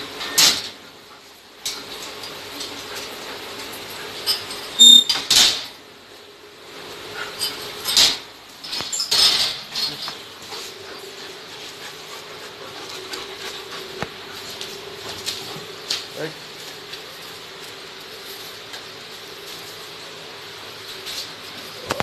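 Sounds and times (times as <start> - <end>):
iron gate rattling open: 0.2 - 0.8, 4.2 - 5.8, 7.3 - 10.3.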